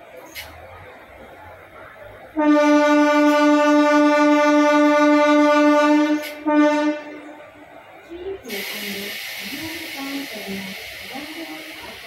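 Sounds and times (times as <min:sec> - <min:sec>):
train horn blasts: 0:02.3 - 0:07.4.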